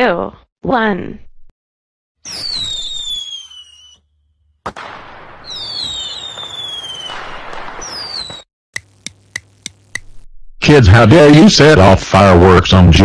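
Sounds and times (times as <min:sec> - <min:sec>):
whistling rockets: 0:02.2 - 0:08.5
firework bang: 0:04.6 - 0:08.4.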